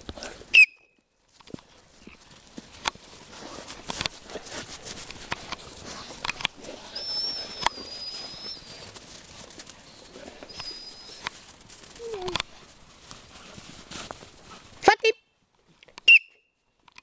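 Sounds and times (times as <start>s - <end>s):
thin high whistle: 0.5s - 0.9s, 7.0s - 8.7s, 10.5s - 11.2s, 16.1s - 16.5s
footsteps and paws in snow: 1.2s - 14.9s.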